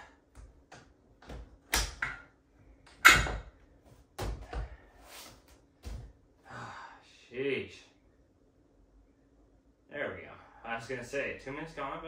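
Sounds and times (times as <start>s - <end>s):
workout bench clunking: 0.8s - 3.6s.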